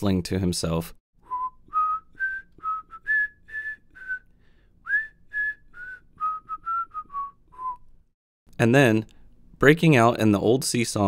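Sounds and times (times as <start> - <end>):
person whistling a tune: 1.2 - 8.0.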